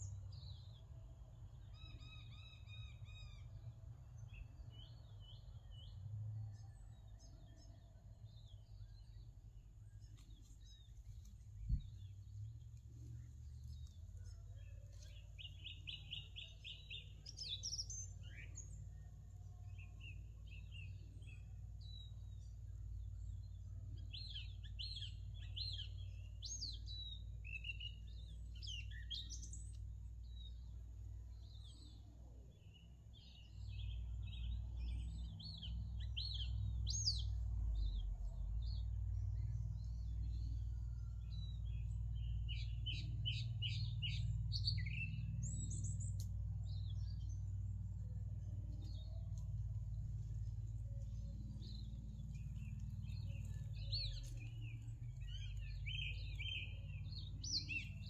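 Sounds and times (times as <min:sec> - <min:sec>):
songbirds chirping and trilling: 0:00.0 - 0:58.0
low rumble: 0:08.3 - 0:23.9, 0:34.1 - 0:58.0.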